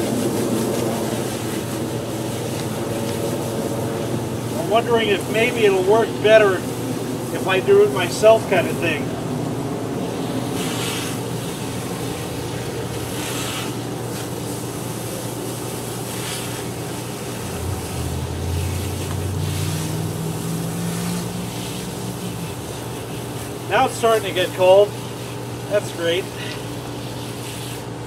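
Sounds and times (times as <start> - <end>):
steady machine hum: 0.0 - 28.0
water spattering onto grass: 10.4 - 27.9
deeper hum: 17.0 - 24.4.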